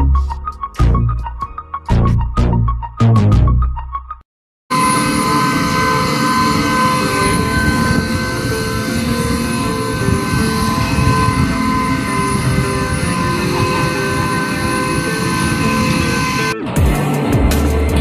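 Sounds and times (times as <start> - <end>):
jet engine whine: 4.7 - 18.0.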